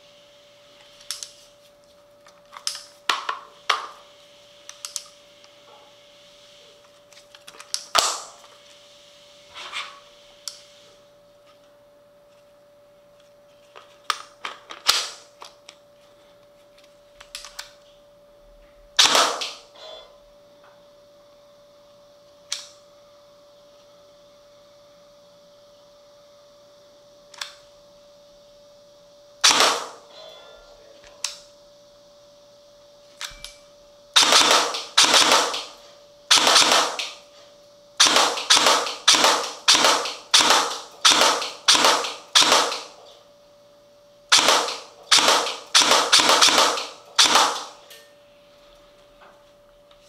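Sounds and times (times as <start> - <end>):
airsoft gun firing shots: 7.9 - 8.3, 19.0 - 19.7, 29.4 - 30.0, 34.2 - 37.2, 38.0 - 43.0, 44.3 - 47.8.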